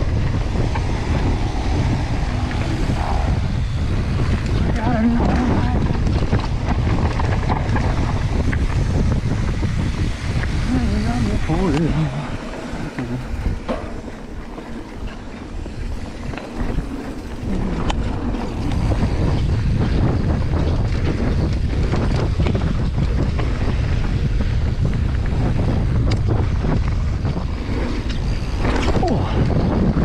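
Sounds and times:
wind rushing over microphone: 0:00.0 - 0:30.0
bike clicks and knocks: 0:00.1 - 0:01.6, 0:12.9 - 0:30.0.

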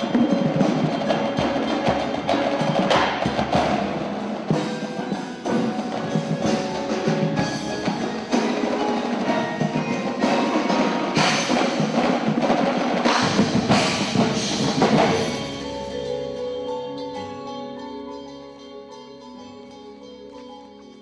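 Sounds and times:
marching snare drums: 0:00.0 - 0:15.4
tenor drums: 0:00.0 - 0:17.8
mallet keyboards: 0:00.0 - 0:21.0.

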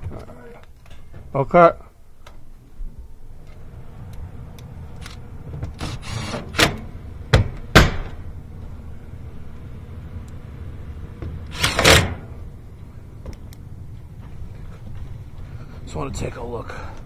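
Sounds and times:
air handler humming: 0:02.2 - 0:17.0
metal scrape: 0:05.8 - 0:06.6, 0:11.5 - 0:12.3.

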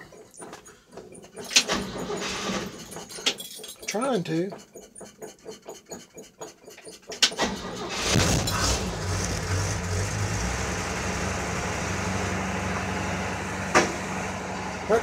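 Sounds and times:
pickup engine starting and idling: 0:00.0 - 0:03.2, 0:07.0 - 0:15.0.

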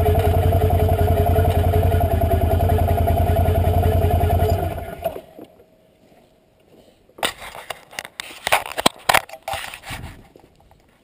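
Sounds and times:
engine dying away: 0:00.0 - 0:05.5
camera handling bumps and scrapes: 0:07.2 - 0:10.8.

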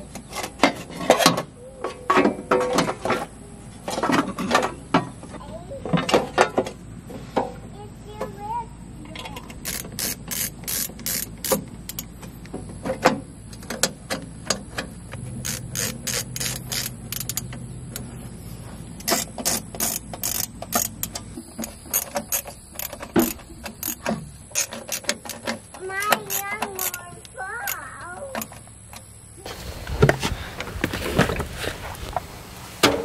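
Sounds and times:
ratcheting screwdriver clicking: 0:09.6 - 0:12.1, 0:15.4 - 0:17.5, 0:19.0 - 0:25.5, 0:26.3 - 0:27.0.

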